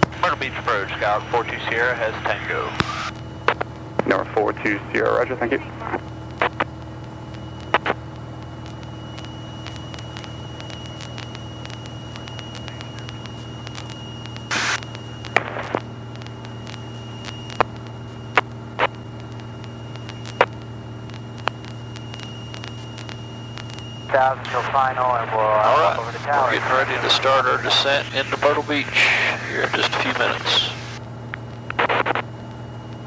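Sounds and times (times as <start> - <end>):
aircraft engine drone: 0.0 - 33.0
crackling noise: 0.0 - 33.0
sharp clicks: 6.0 - 23.8.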